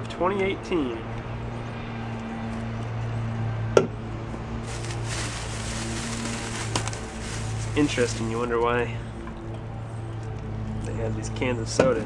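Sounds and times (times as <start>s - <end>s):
plastic bag and clothing rustling: 4.6s - 8.6s.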